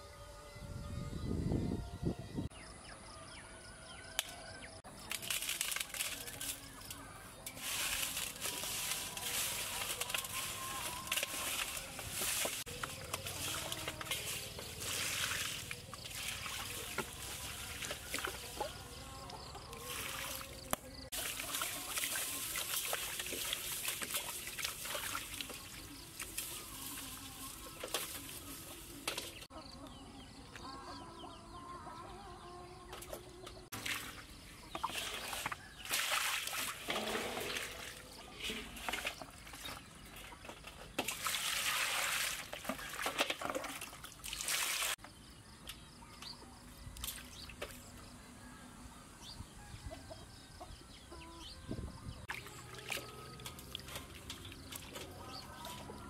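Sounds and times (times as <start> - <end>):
water splashing in metal basin: 5.0 - 6.7, 7.5 - 29.5, 33.7 - 45.0, 52.3 - 56.0.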